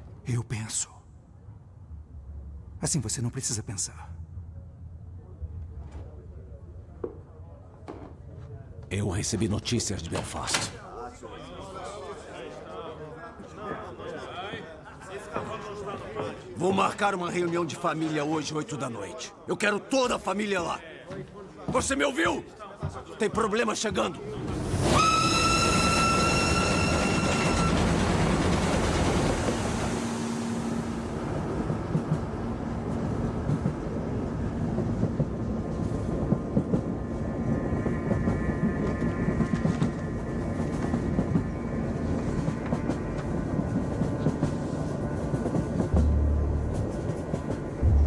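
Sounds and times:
train rumbling and clattering: 21.7s - 48.0s
steam locomotive whistle: 24.8s - 27.8s.

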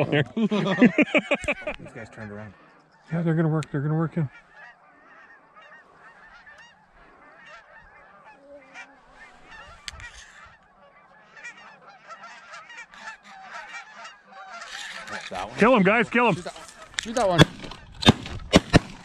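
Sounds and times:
geese honking: 0.0s - 19.0s.

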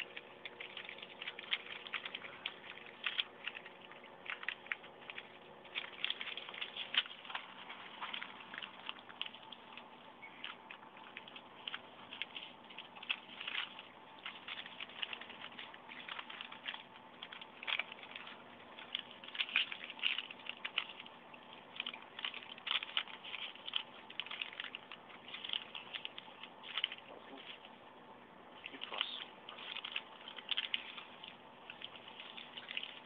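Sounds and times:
newspaper crackling and rustling: 0.0s - 27.9s, 28.6s - 33.0s
faint steady hum: 0.0s - 33.0s.

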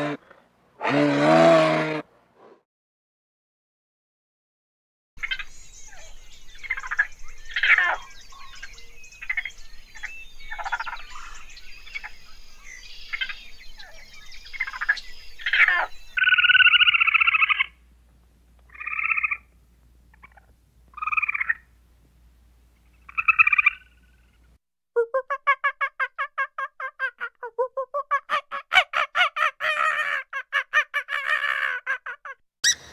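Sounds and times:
squirrel buzzy calls: 14.6s - 17.8s, 18.7s - 19.5s, 20.1s - 21.6s, 23.1s - 24.0s, 28.0s - 32.9s.

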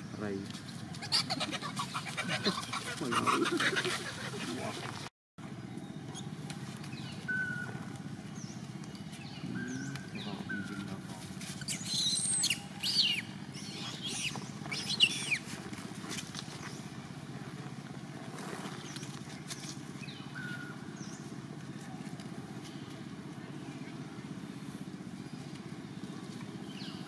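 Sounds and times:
high-pitched chirping calls: 11.6s - 15.4s.

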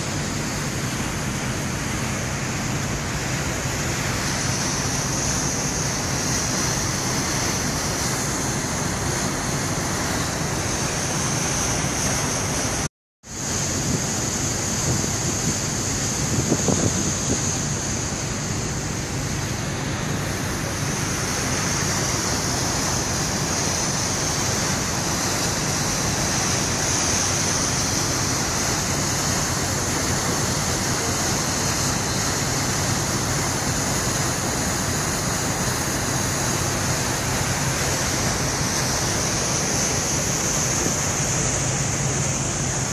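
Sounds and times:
water rushing along hull: 0.0s - 42.9s.

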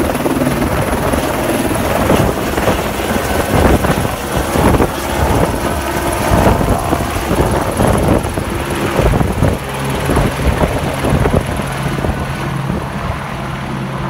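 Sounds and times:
helicopter high whine: 0.0s - 14.0s
helicopter rotor beating: 0.0s - 14.0s.

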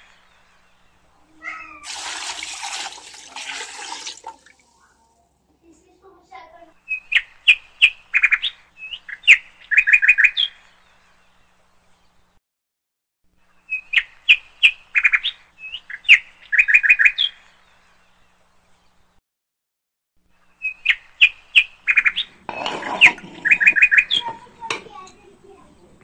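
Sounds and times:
bird chirping: 6.8s - 12.2s, 13.4s - 19.0s, 20.4s - 24.5s.

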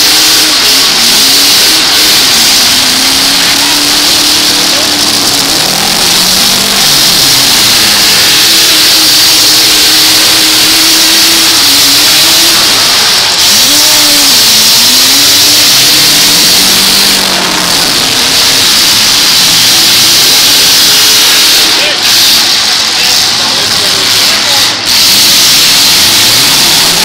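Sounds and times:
dense loud noise wash: 0.0s - 27.0s
truck engines revving: 0.0s - 27.0s.

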